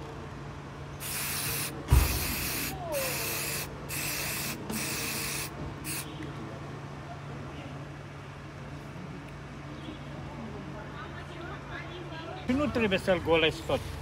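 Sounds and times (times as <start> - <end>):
aerosol can spraying: 1.0 - 6.1
thump: 1.8 - 2.4.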